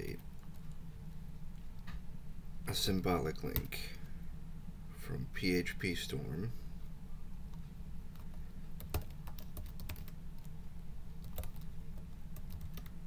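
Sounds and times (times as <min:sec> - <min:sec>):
low background hum: 0:00.0 - 0:13.0
keyboard typing clicks: 0:08.2 - 0:10.5, 0:11.2 - 0:11.7.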